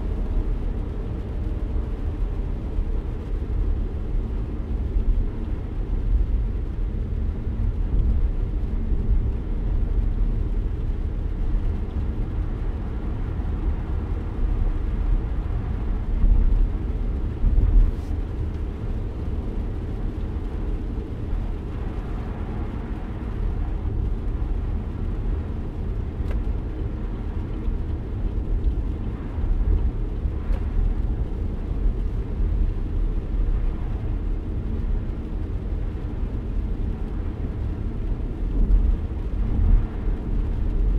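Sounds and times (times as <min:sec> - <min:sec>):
tyre and road noise rumble: 0:00.0 - 0:40.9.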